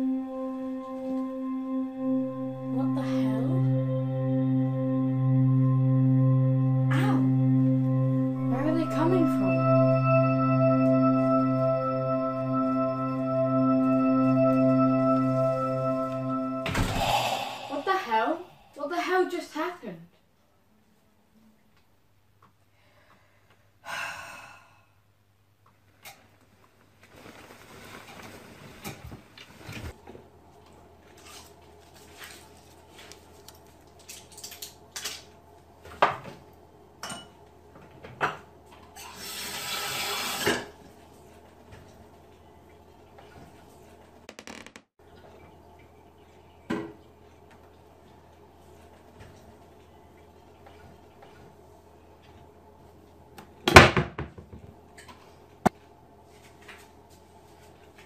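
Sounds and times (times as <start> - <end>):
low steady hum: 0.0 - 19.7.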